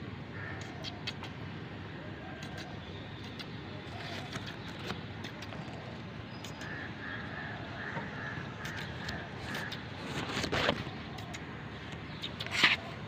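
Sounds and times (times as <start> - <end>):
steady background hiss: 0.0 - 13.0
sharp clicks: 6.4 - 6.8.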